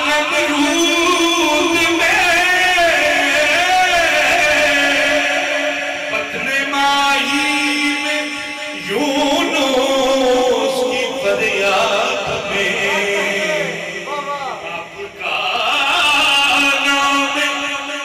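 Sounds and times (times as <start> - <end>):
man chanting devotional song: 0.0 - 18.0.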